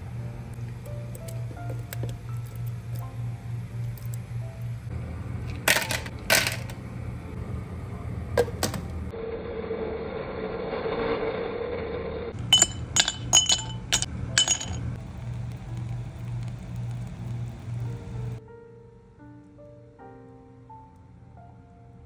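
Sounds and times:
steady hum: 0.0 - 10.7, 12.3 - 19.4
ice cubes clinking in glass: 12.4 - 14.9.

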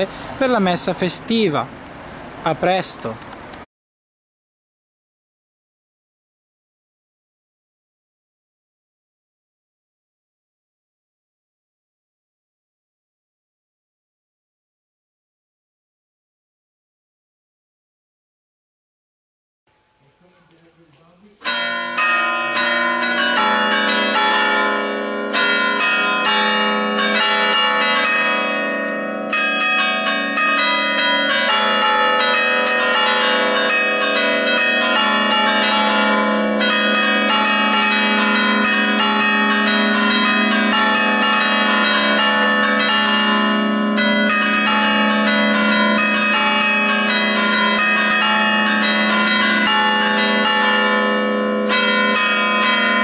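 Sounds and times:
church bells pealing: 19.8 - 53.0.

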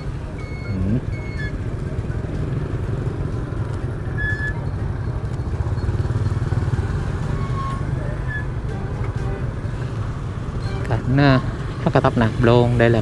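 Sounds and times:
motorbike engine at low speed: 0.0 - 13.0
street traffic noise: 0.0 - 13.0
short high tones: 10.6 - 11.5.

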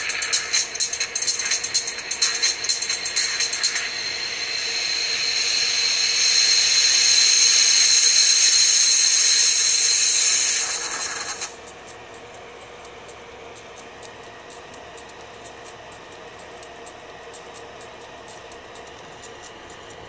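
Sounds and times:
loudspeaker hiss: 0.0 - 11.6
high whistle: 3.2 - 11.5.

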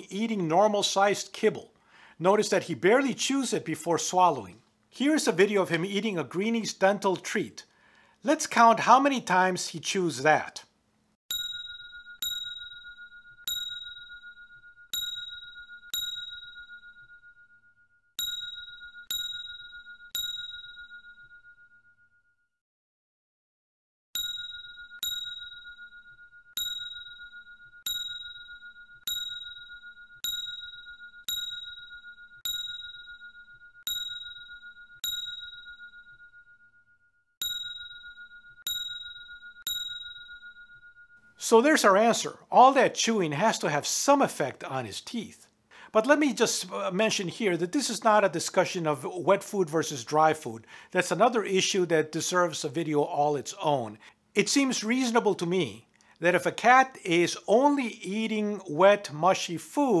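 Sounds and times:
bell-like ding: 11.3 - 22.5, 24.2 - 41.4.

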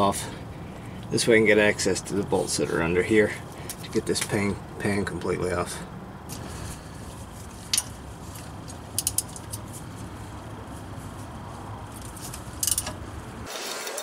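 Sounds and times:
ratchet wrench clicking: 8.9 - 9.7, 12.2 - 13.0.

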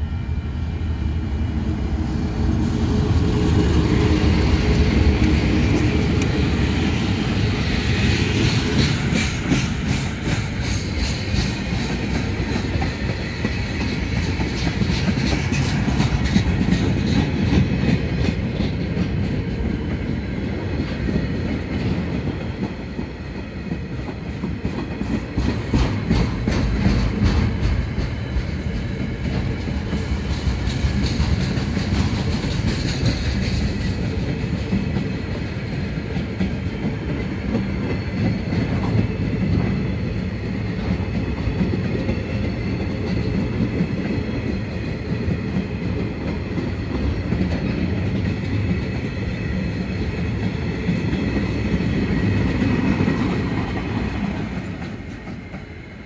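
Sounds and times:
freight train wagons rolling: 2.6 - 19.7
wheels clacking over rail joints: 8.1 - 19.8.

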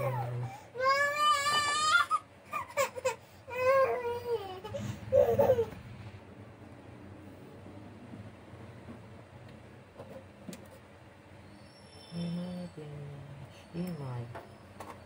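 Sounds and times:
child crying: 0.0 - 5.8
low room hum: 0.0 - 15.0.

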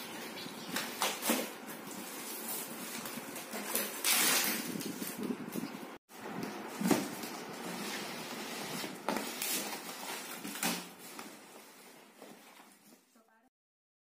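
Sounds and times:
packing tape tearing: 0.7 - 5.3
cardboard flaps rustling: 6.2 - 13.0.

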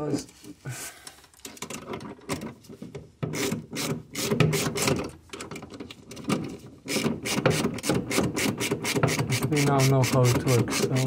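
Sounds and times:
tool scraping metal bracket: 3.3 - 5.5, 6.1 - 11.0.

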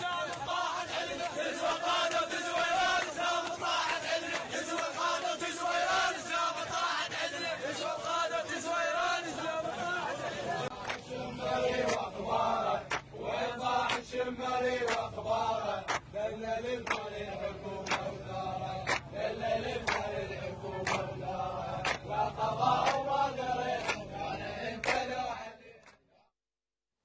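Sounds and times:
people clapping on a beat: 0.0 - 26.1
men chanting in unison: 0.0 - 26.3.

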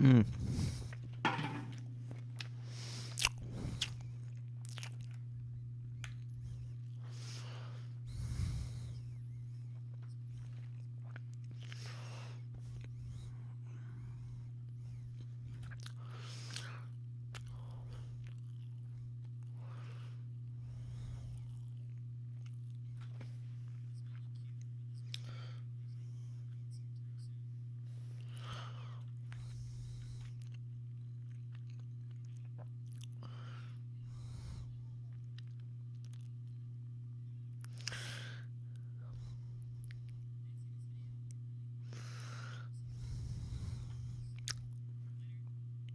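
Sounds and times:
low hum: 0.0 - 45.9
person chewing: 0.2 - 5.3, 6.0 - 7.4, 8.1 - 13.3, 14.9 - 19.9, 20.9 - 25.3, 28.1 - 36.6, 37.6 - 38.3, 42.8 - 44.8
food crunching: 0.7 - 5.4, 9.7 - 13.0, 15.5 - 19.8, 28.2 - 33.5, 35.1 - 36.6, 37.6 - 38.0, 44.3 - 44.8
chewing mouth clicks and smacks: 2.1 - 5.2, 6.0 - 7.0, 9.8 - 12.0, 15.5 - 16.7, 17.3 - 19.5, 29.0 - 33.3, 35.1 - 36.6, 44.3 - 44.8.

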